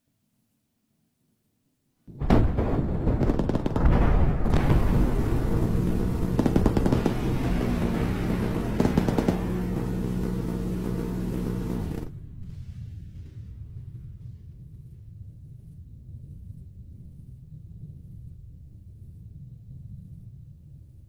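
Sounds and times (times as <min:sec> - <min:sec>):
rapid-fire gun burst: 0:02.2 - 0:12.2.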